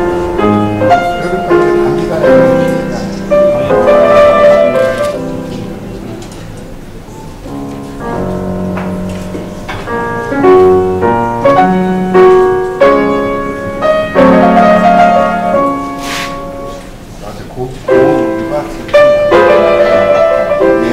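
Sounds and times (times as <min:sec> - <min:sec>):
slow piano melody: 0:00.0 - 0:20.9.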